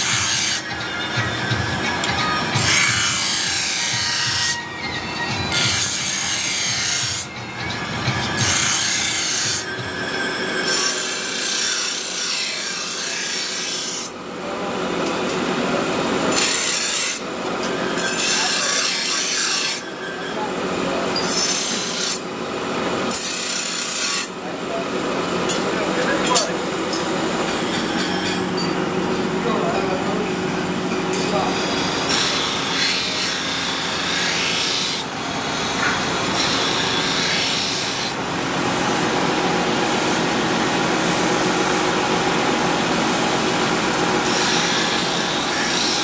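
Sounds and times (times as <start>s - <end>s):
knife grinding on grinding wheel: 0.0s - 14.2s, 16.3s - 22.3s, 23.0s - 24.4s, 25.4s - 30.0s, 30.6s - 38.3s, 43.6s - 46.0s.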